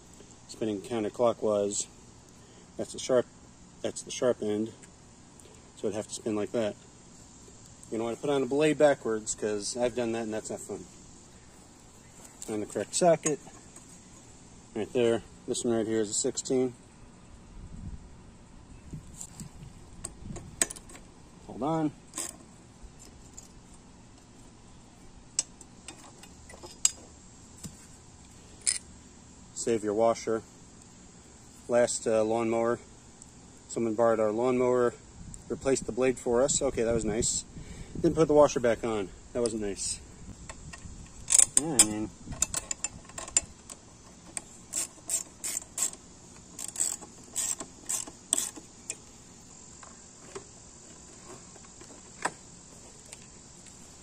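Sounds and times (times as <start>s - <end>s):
metal hardware clinking: 12.4s - 13.9s, 28.6s - 28.9s, 41.1s - 49.1s
socket ratchet clicking: 40.5s - 49.0s.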